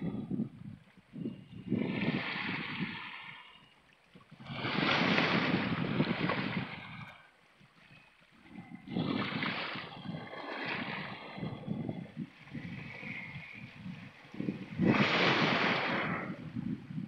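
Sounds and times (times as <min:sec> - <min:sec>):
sea waves washing over rocks: 0:04.4 - 0:07.2, 0:08.8 - 0:17.0.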